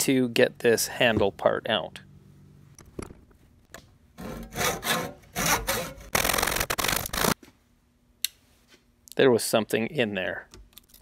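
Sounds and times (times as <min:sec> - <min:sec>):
hand saw cutting wood: 0:04.2 - 0:07.4.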